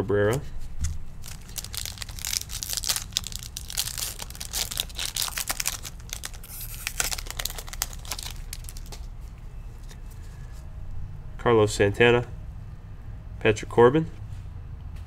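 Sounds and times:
foil wrapper crinkling and tearing: 1.2s - 10.0s.

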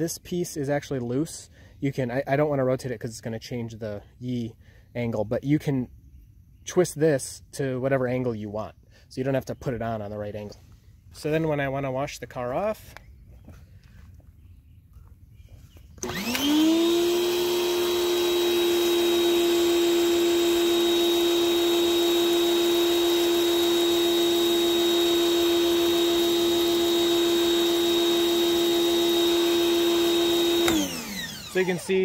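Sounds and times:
pressure washer pump whine: 16.0s - 32.0s.

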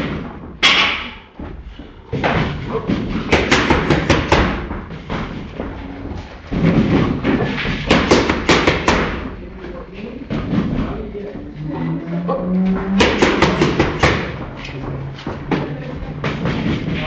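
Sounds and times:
boxing gloves hitting pads: 2.1s - 5.8s, 6.5s - 9.4s, 12.7s - 17.0s.

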